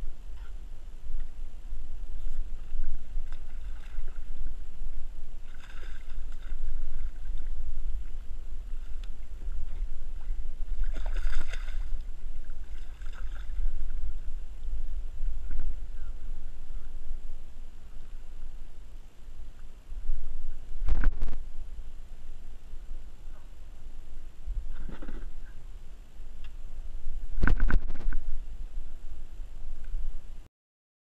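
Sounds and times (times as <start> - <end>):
wind rumble on microphone: 0.0 - 30.5
fish splashing in water: 5.4 - 7.5, 10.7 - 13.8.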